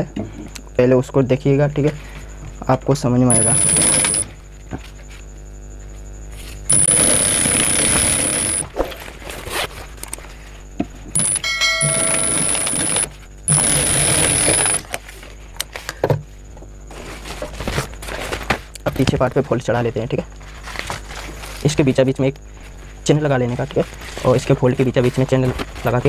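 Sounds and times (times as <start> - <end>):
sewing machine whine: 3.3 - 4.4, 6.7 - 9.6, 11.2 - 15.0.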